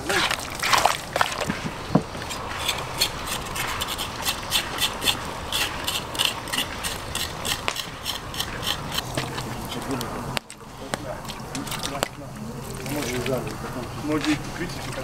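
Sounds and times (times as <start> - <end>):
knife scraping on cutting board: 2.2 - 9.9.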